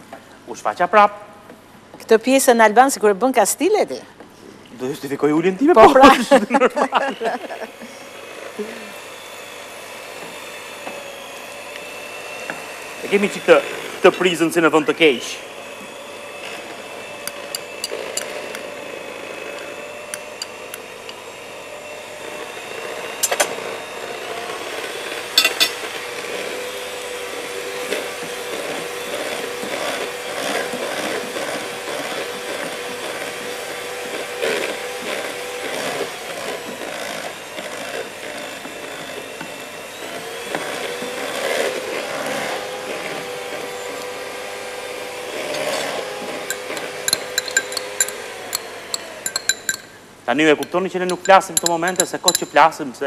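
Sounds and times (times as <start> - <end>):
electric hand mixer running: 5.7 - 52.8
beaters scraping glass bowl: 17.3 - 18.7, 25.3 - 25.8, 45.4 - 52.8.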